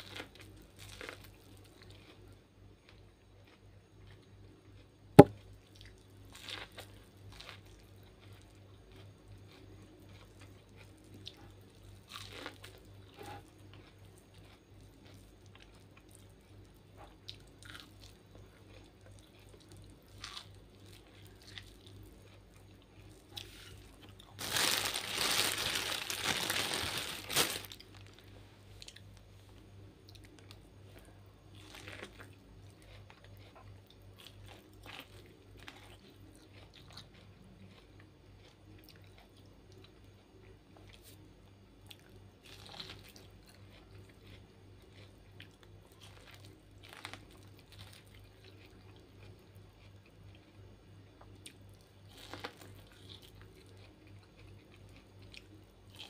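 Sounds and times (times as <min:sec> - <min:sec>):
loud crinkling rustle: 0:24.4 - 0:28.2.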